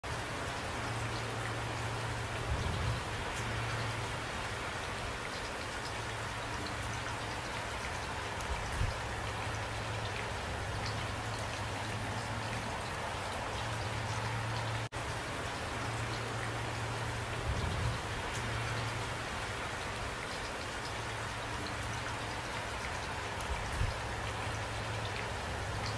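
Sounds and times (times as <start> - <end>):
steady rain falling: 0.0 - 25.9.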